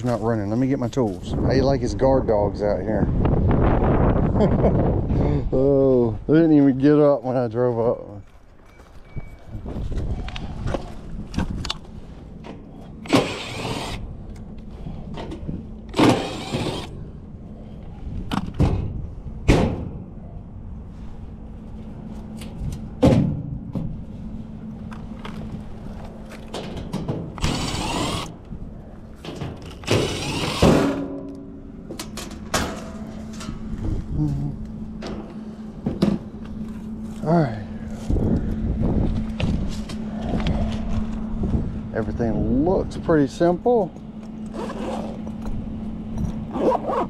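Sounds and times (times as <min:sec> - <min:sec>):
steady low hum: 0:00.0 - 0:47.0
power driver whirring: 0:12.9 - 0:14.5, 0:15.9 - 0:17.1, 0:27.3 - 0:28.6, 0:29.6 - 0:31.0.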